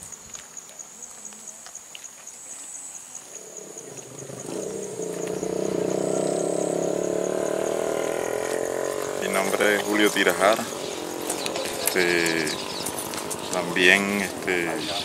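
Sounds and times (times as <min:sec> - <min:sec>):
crickets chirping: 0:00.0 - 0:15.0
engine humming: 0:03.4 - 0:15.0.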